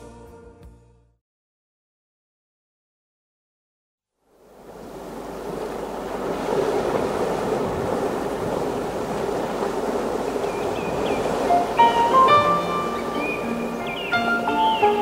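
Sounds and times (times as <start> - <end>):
ocean surf washing: 4.3 - 15.0
faint high gliding call: 9.8 - 15.0.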